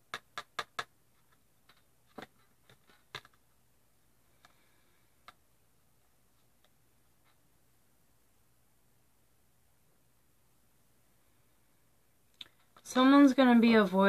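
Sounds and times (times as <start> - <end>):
cards clicking on tabletop: 0.0 - 3.4.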